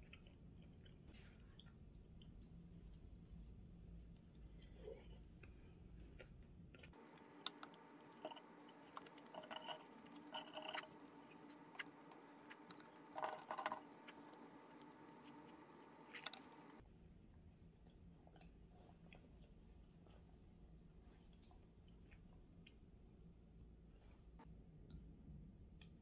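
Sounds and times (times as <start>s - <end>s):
chewing and slurping: 6.2s - 16.8s
metal cutlery on ceramic bowl: 8.2s - 11.0s.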